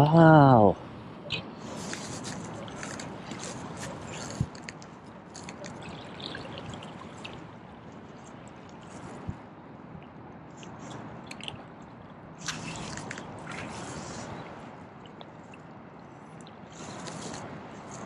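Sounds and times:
shallow water sloshing: 1.8 - 9.4, 10.8 - 15.8.

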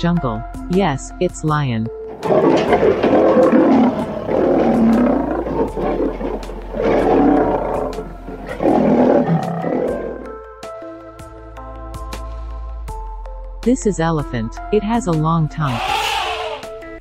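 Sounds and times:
lion roaring: 2.1 - 10.4, 15.7 - 16.7.

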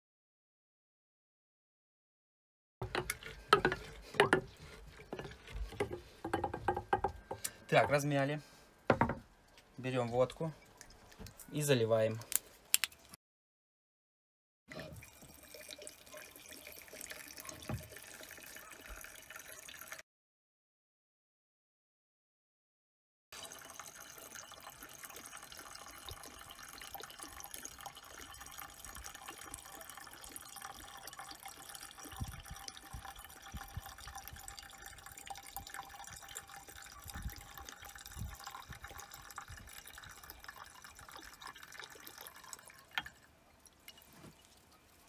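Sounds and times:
liquid pouring into glass jar: 2.8 - 8.1, 14.7 - 20.0, 23.4 - 45.0.

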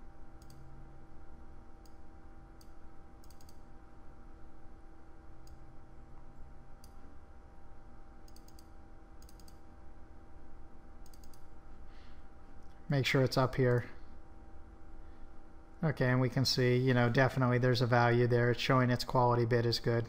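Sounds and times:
steady low hum: 0.0 - 20.0
computer mouse clicking: 0.4 - 0.7, 2.6 - 3.6, 8.3 - 9.6, 11.0 - 11.5.

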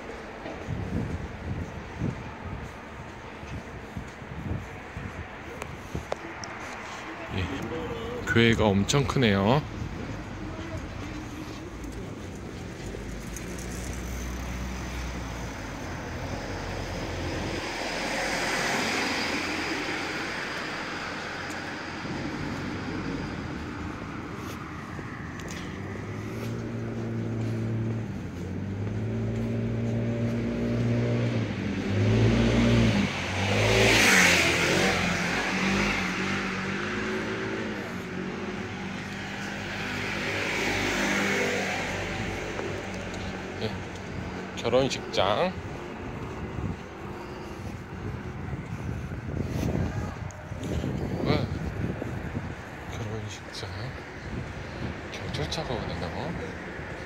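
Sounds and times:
vehicles driving past: 0.0 - 57.0
engine revving through gears: 26.6 - 43.6.

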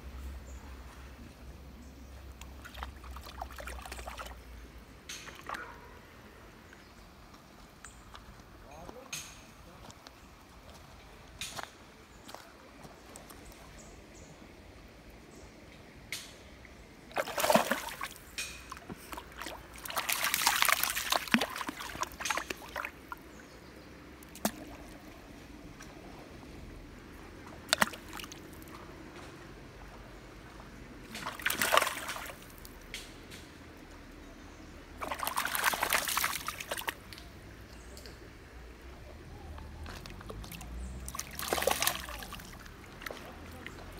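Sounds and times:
shallow water trickling: 17.0 - 25.8, 34.8 - 37.3, 39.8 - 43.9
dog splashing through water: 17.1 - 18.2, 19.0 - 23.0, 31.2 - 32.4, 35.0 - 37.0, 39.8 - 43.9.

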